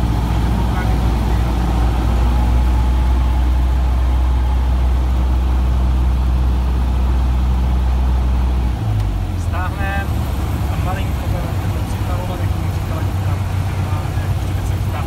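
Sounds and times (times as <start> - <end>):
airplane engine and propeller humming: 0.0 - 15.0.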